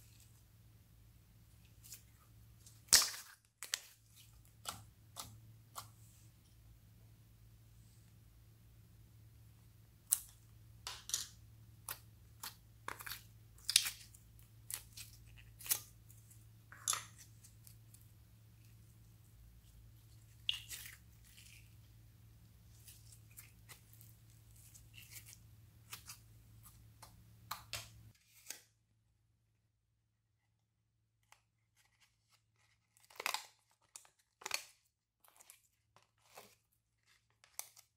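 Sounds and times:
slime crackling and popping: 10.1 - 15.9.

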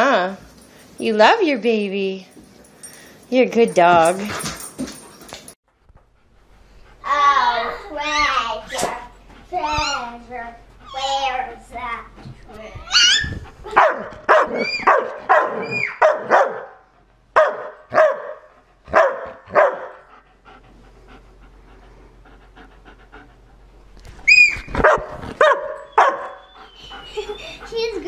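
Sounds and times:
dog barking: 13.7 - 16.8, 17.4 - 20.0, 24.8 - 26.4.

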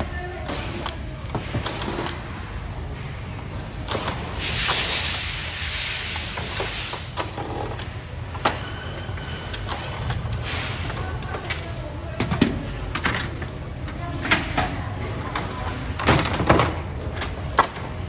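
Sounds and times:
knocks and plastic clatter: 9.5 - 18.0.

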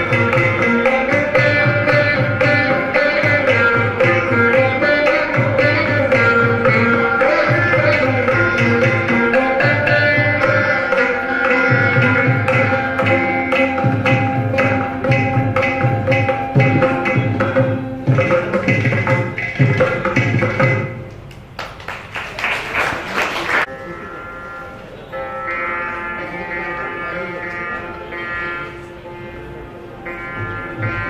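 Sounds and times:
plucked strings with hand drums: 0.0 - 21.3, 25.6 - 31.0
applause: 21.3 - 23.7.

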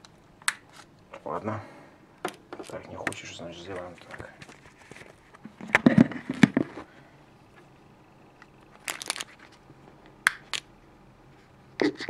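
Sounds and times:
plastic bag crinkling: 8.7 - 9.6.

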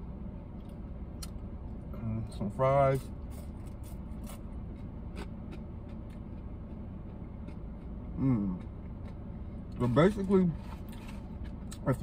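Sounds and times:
person humming mm: 8.2 - 8.6.

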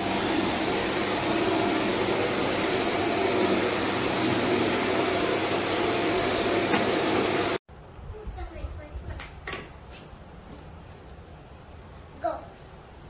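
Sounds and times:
vacuum cleaner motor drone: 0.0 - 7.6.

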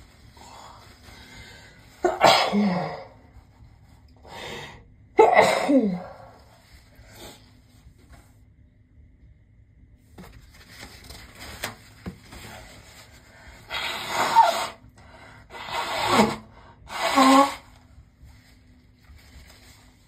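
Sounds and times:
soft rustling: 10.1 - 13.4, 18.1 - 20.0
person blowing nose: 13.7 - 14.8, 15.5 - 17.8.

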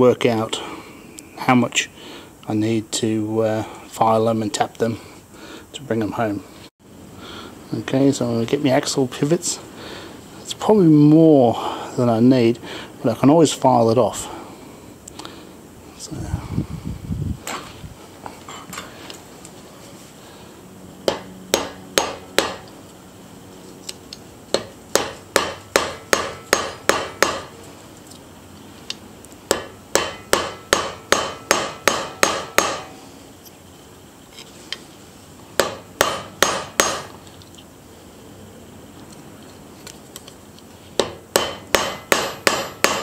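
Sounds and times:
hammer tapping metal pins: 41.0 - 43.0.

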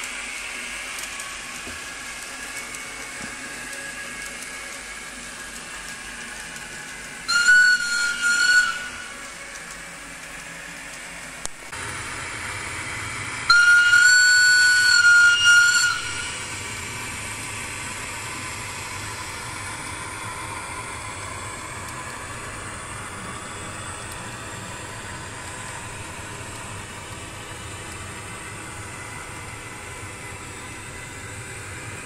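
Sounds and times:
model locomotive running hum: 0.0 - 32.0
click: 0.9 - 4.8, 9.2 - 11.6
locomotive horn blast: 13.5 - 16.3.

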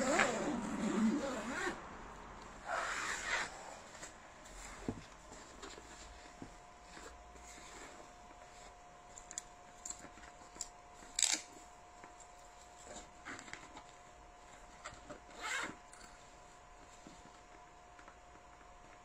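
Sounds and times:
backpack fabric rustling: 0.0 - 1.8, 2.4 - 8.8.

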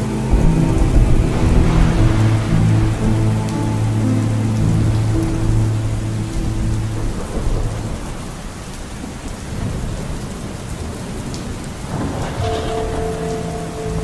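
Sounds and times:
held music chord: 0.0 - 8.2, 12.4 - 14.0
heavy rain: 0.0 - 14.0
low rumbling thunder: 0.0 - 14.0.

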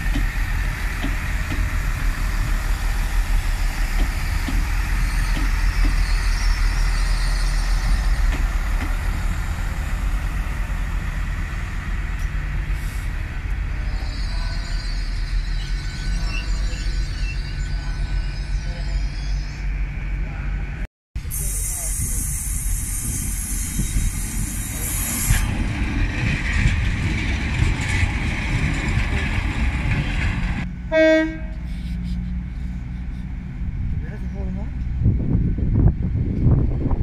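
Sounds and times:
wheels on rails: 23.8 - 30.7
diesel engine rumble: 24.7 - 37.0.

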